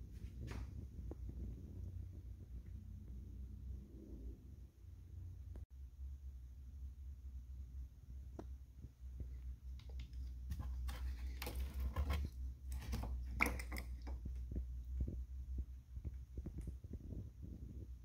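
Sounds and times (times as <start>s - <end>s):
steady low hum: 0.0s - 18.0s
scraping rustles: 9.9s - 14.5s.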